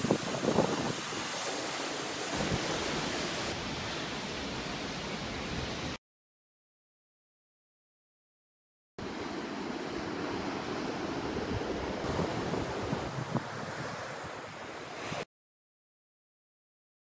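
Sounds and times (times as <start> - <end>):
wind buffeting microphone: 0.0 - 1.4, 10.6 - 14.7
ocean surf washing onto beach: 0.0 - 6.0, 9.0 - 15.3.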